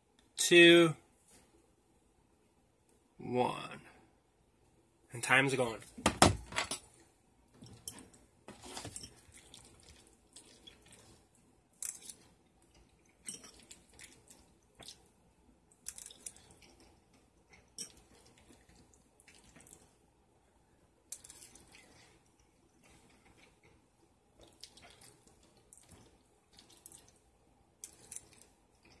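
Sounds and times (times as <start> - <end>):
wet chewing: 7.8 - 20.0, 24.4 - 27.2, 27.8 - 29.0.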